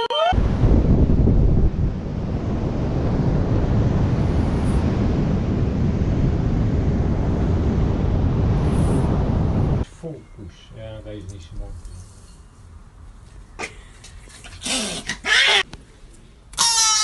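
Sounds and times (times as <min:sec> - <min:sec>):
loud wind noise on microphone: 0:00.4 - 0:09.9.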